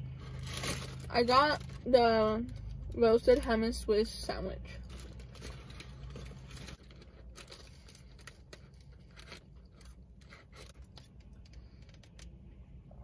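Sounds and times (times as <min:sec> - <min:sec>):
paper bag rustling and crinkling: 0:00.2 - 0:02.0, 0:04.8 - 0:11.1.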